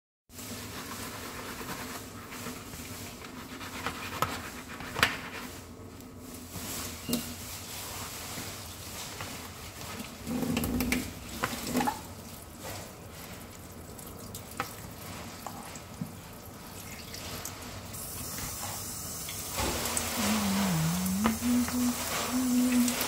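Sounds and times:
person humming: 0:20.1 - 0:23.0.

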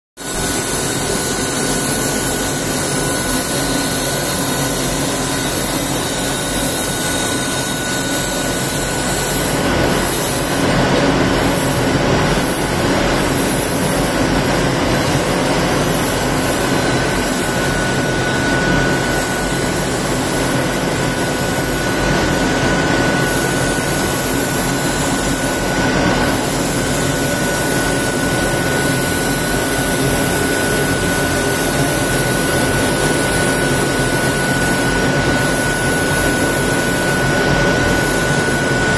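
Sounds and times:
cutting machine noise: 0:00.2 - 0:38.9
high machine whistle: 0:15.1 - 0:38.9.

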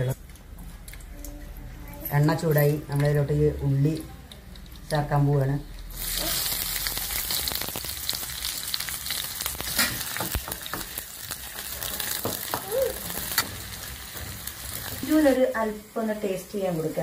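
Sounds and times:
onions sizzling in hot oil: 0:05.0 - 0:17.0.

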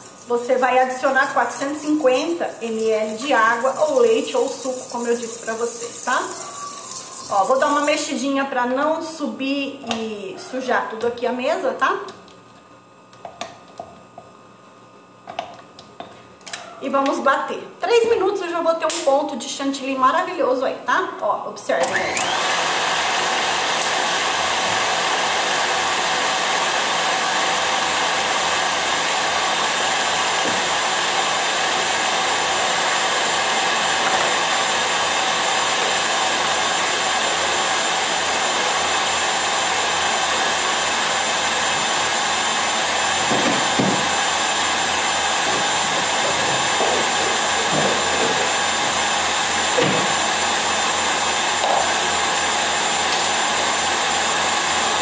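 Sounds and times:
stand mixer motor whine: 0:00.9 - 0:07.9, 0:21.8 - 0:55.0.

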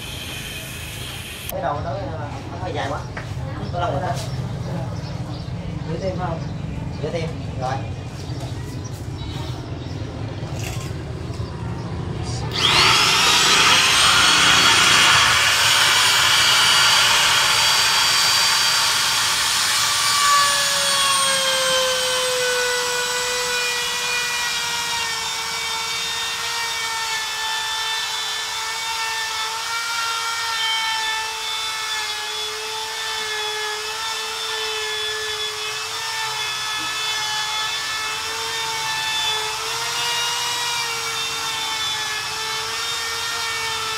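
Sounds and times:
electric router whining: 0:00.0 - 0:01.6, 0:12.4 - 0:43.9.

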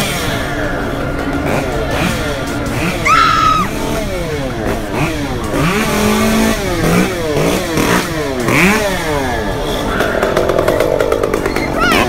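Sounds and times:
chainsaw engine revving: 0:01.4 - 0:09.6.

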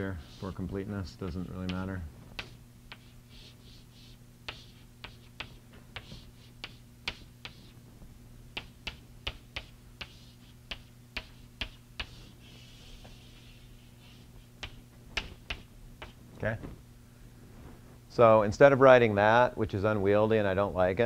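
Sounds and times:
chalk tapping on a blackboard: 0:01.2 - 0:07.8, 0:08.5 - 0:16.2.

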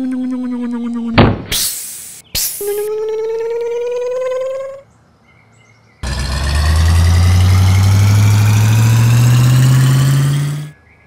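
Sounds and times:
cartoon crane engine rising in pitch: 0:06.0 - 0:10.7.

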